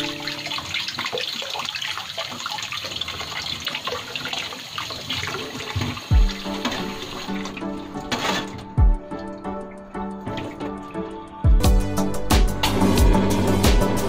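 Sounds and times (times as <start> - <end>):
tap water splashing into container: 0.0 - 11.2
background music with deep bass: 6.1 - 14.0.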